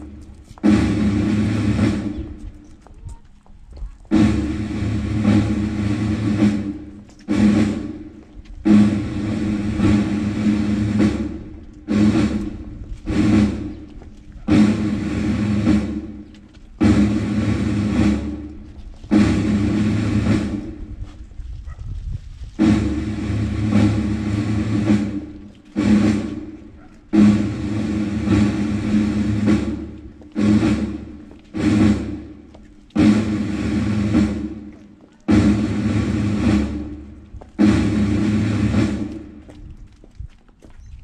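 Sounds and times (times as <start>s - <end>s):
drum rolls: 0.0s - 21.7s, 22.4s - 40.5s.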